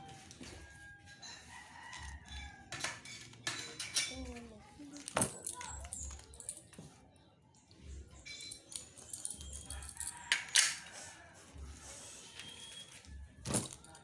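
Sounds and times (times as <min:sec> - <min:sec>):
clicks and knocks of metal fittings: 0:02.0 - 0:06.8, 0:08.2 - 0:10.9.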